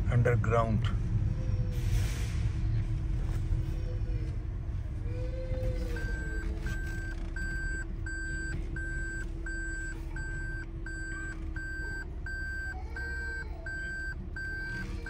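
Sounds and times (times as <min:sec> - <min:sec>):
car rumbling slowly: 0:00.0 - 0:15.0
electronic warning beeps: 0:06.0 - 0:15.0.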